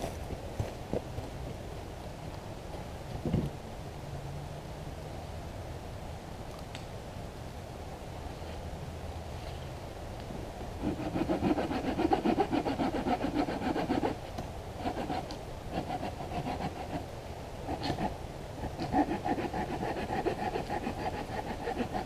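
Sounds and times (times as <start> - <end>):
handsaw cutting log: 10.8 - 17.1, 17.7 - 22.0.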